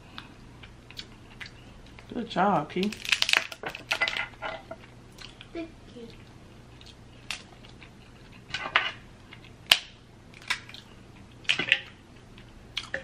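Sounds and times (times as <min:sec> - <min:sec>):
crab shells cracking: 0:02.8 - 0:04.4, 0:09.4 - 0:12.0.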